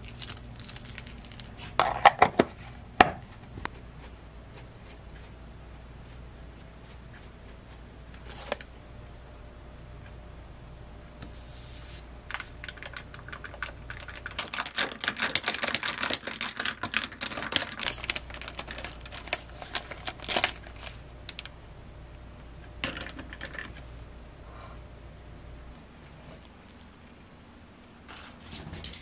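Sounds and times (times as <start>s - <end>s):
plastic bag crinkling: 0.0s - 2.2s, 12.2s - 21.6s.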